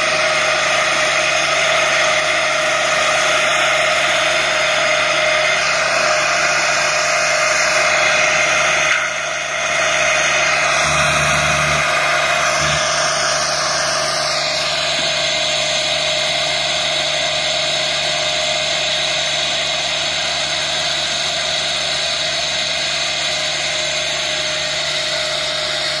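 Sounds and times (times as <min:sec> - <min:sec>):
mower mechanical whine: 0:00.0 - 0:26.0
tractor engine running: 0:00.0 - 0:26.0.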